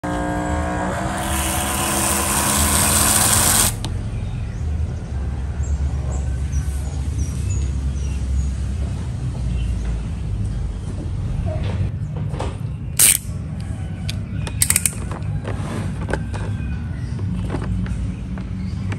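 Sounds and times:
pressure sprayer hissing: 1.2 - 3.8.

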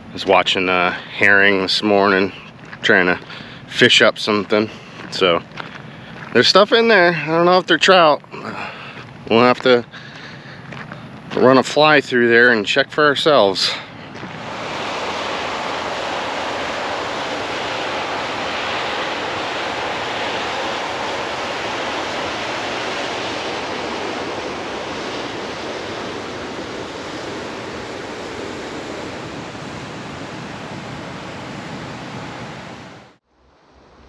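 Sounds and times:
river water rushing: 13.8 - 33.2.

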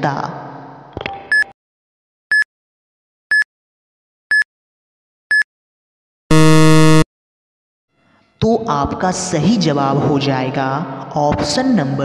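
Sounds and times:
short high beeps: 6.3 - 7.0
loud low buzzer: 6.3 - 7.1.

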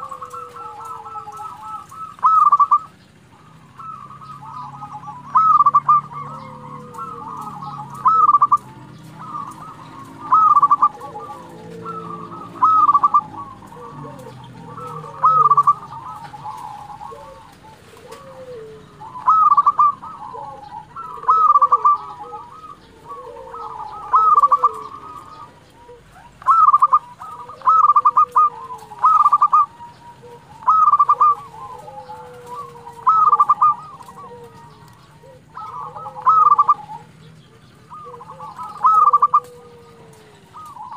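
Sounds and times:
dove cooing: 0.0 - 40.9.

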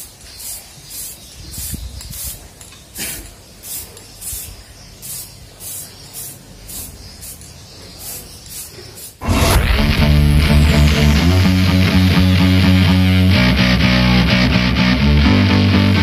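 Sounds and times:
spray paint can hissing: 0.0 - 11.8.

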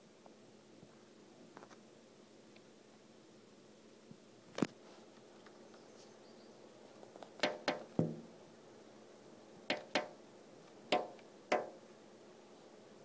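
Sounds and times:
bird pecking on glass: 7.4 - 8.2, 9.7 - 10.2, 10.9 - 11.8.

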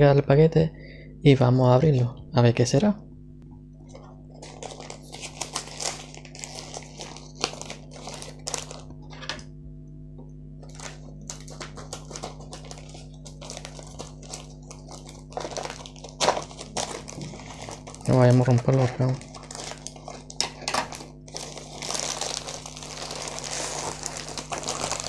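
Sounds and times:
steady low hum: 0.0 - 25.0
plastic bag crinkling: 3.8 - 9.5, 10.6 - 25.0
scissors cutting plastic: 10.6 - 25.0.

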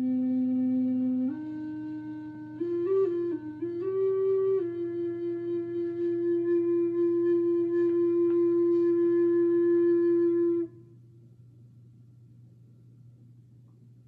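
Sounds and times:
flute holding a long note: 0.0 - 11.0
faint low hum: 0.0 - 14.0.

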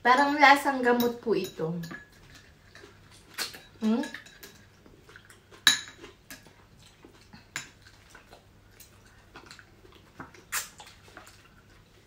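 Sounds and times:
metal spoon clinking on ceramic bowl: 0.8 - 2.2, 5.6 - 6.0.

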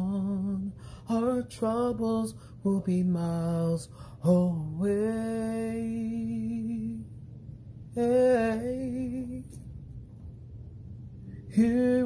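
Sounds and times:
person singing with vibrato: 0.0 - 7.1, 7.9 - 9.6, 11.5 - 12.0.

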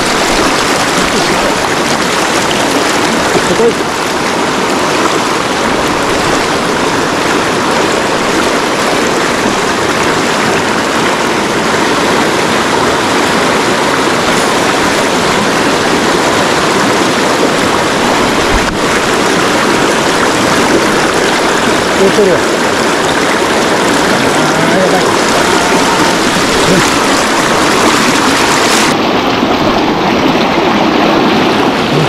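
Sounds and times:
river rushing: 0.0 - 32.0.

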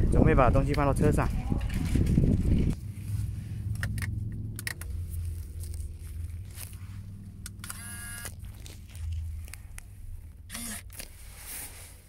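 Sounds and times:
low car cabin hum: 2.5 - 11.3.

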